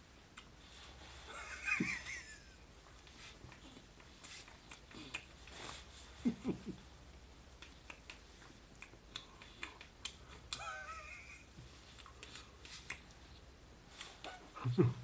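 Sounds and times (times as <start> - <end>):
man chewing bread: 3.4 - 5.9.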